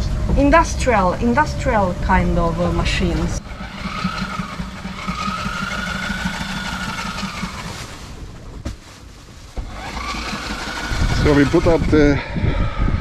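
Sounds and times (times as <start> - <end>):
sewing machine rattle and motor whine: 2.0 - 12.2.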